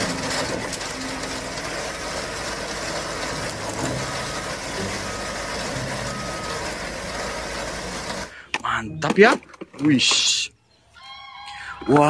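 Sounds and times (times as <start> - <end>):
reversing alarm beeping: 0.0 - 8.4
diesel engines running: 0.0 - 10.5.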